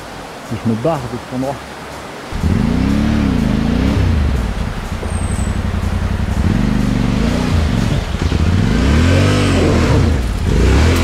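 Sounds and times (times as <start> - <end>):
motorcycle engine revving: 2.3 - 11.0.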